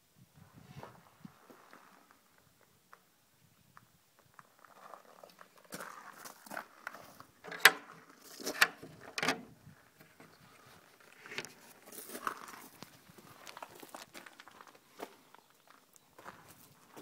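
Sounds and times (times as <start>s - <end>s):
metal slide bolt clicking: 7.5s - 7.8s, 8.4s - 9.4s.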